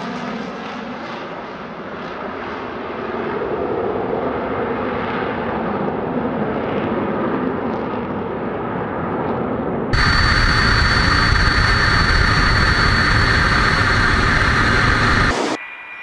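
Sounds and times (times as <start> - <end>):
fighter jets flying past: 10.0 - 15.6.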